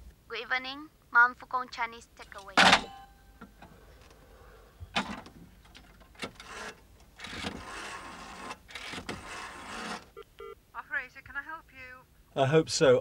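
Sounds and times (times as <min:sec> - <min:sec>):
payphone mechanical whirring: 0:05.9 - 0:10.1.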